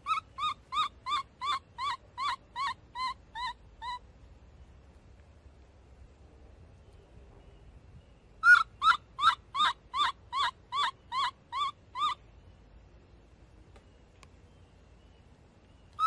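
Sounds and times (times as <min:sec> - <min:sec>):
baby monkey screaming: 0:00.0 - 0:04.0, 0:08.4 - 0:12.2.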